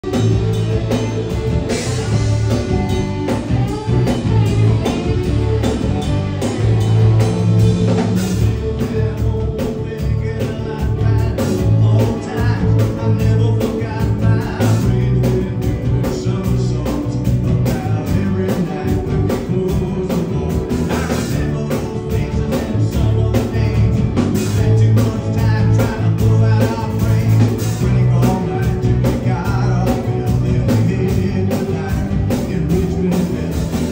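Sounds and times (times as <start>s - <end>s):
live rock band playing: 0.0s - 33.9s
person singing: 0.0s - 33.9s.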